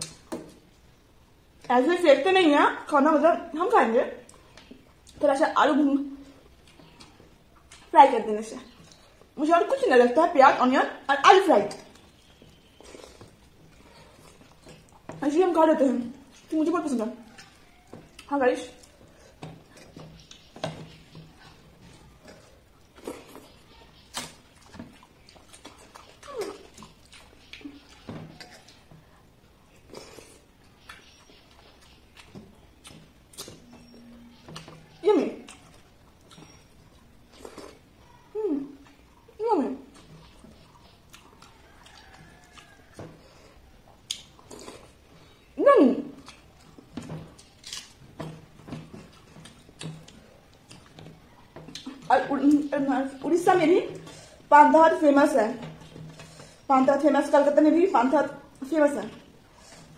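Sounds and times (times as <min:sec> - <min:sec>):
lip smacks and chewing: 0:11.7 - 0:15.2, 0:17.2 - 0:33.6, 0:34.4 - 0:37.9, 0:39.9 - 0:45.4, 0:46.2 - 0:52.7.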